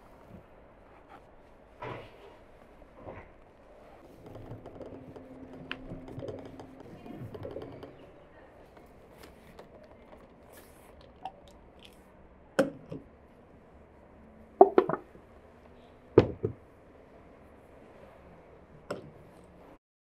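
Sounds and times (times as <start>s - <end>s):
glass jars knocking on wooden table: 14.6s - 15.1s.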